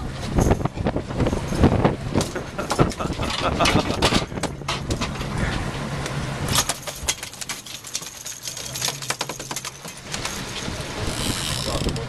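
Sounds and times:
boat motor humming: 0.0 - 12.0
fishing gear rattling: 6.4 - 12.0.

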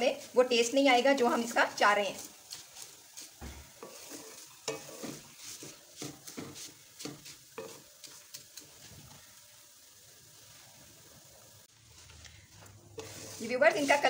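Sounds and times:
wooden spatula scraping a wok: 0.0 - 9.4, 10.4 - 14.0
faint sizzle: 0.0 - 14.0.

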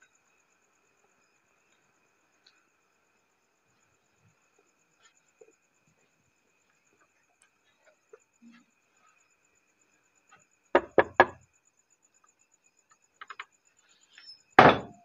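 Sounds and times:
knocking on wooden door: 10.8 - 11.4, 14.6 - 15.0.

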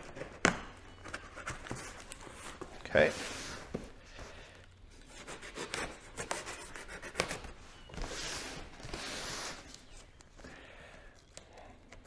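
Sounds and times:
cardboard rubbing and scraping: 5.1 - 9.9.

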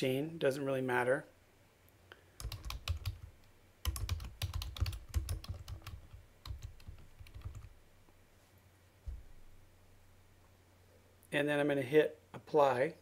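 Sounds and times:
typing on computer keyboard: 2.4 - 7.7.

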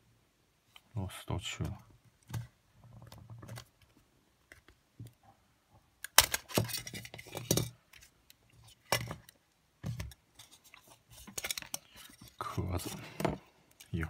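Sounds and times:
cassette player being taken apart: 6.0 - 7.7.

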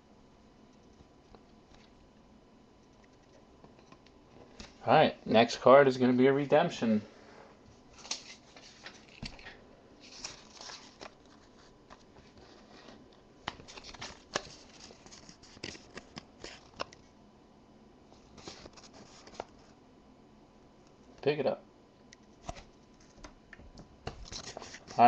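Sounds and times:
faint paper rustling: 7.7 - 17.1, 18.1 - 19.8, 24.0 - 25.0.

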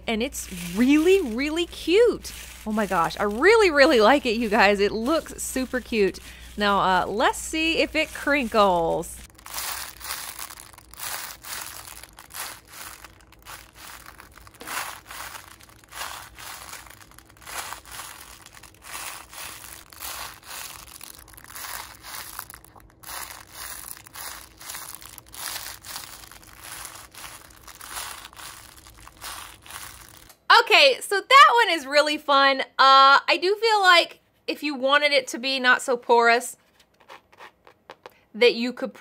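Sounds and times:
foil crinkling in squeezed squishy: 0.2 - 30.3.

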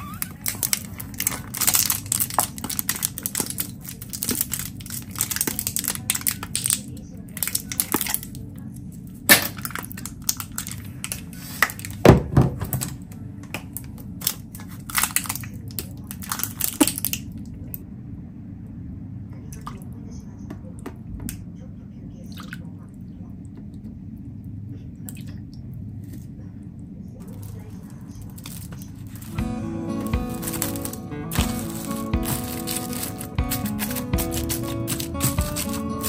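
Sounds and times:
plastic tubes crinkling: 0.0 - 8.4, 9.4 - 12.0, 13.8 - 17.2, 27.2 - 36.0.

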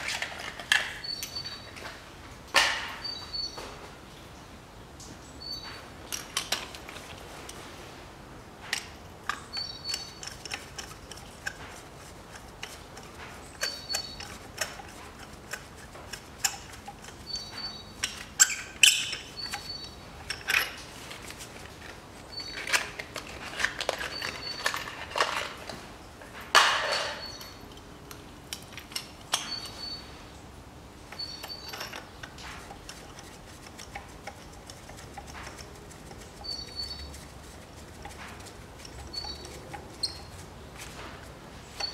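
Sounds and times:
birds chirping: 1.0 - 1.8, 3.0 - 3.8, 5.2 - 5.8, 9.3 - 10.4, 13.4 - 14.4, 17.1 - 20.1, 24.0 - 24.8, 29.3 - 30.2, 31.1 - 32.4, 35.6 - 37.3, 38.8 - 40.4
metal clinks: 31.2 - 32.5.

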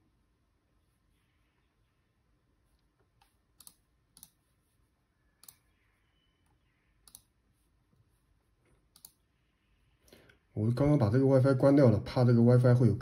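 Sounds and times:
faint computer clicks: 2.8 - 4.4, 7.0 - 7.3, 8.7 - 9.2.

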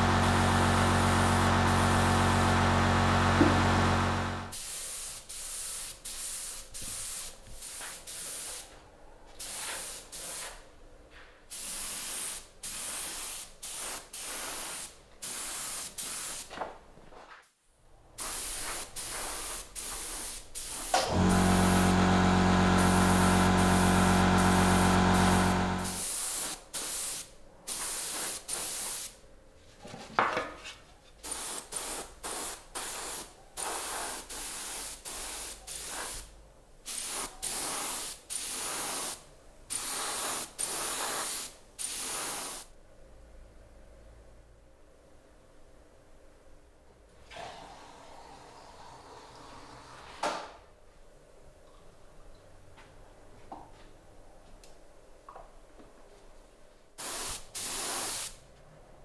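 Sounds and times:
motor running: 0.4 - 4.5, 21.1 - 25.9
spray hissing in bursts: 4.5 - 8.7, 11.5 - 16.5, 18.2 - 29.2, 31.2 - 36.3, 36.9 - 42.7, 57.0 - 58.4.

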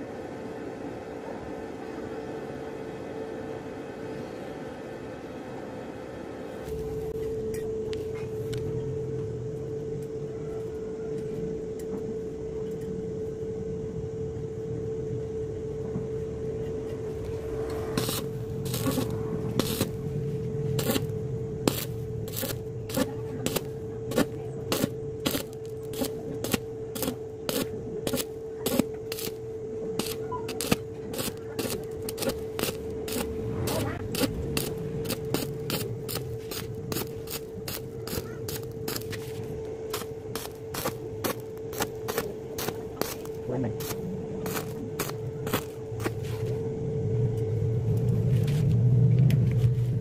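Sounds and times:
steady hum: 0.0 - 50.0
welding arc crackling: 17.2 - 46.2.

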